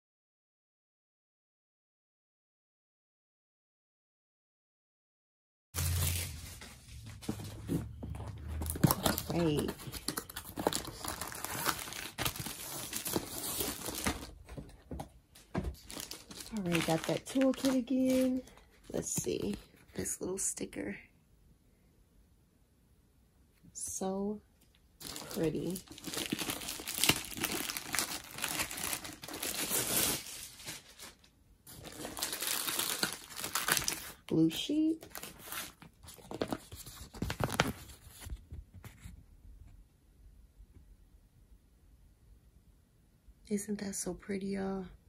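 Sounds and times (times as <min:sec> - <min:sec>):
packaging crinkling and rustling: 0:05.8 - 0:19.9, 0:25.0 - 0:34.4, 0:35.0 - 0:38.5.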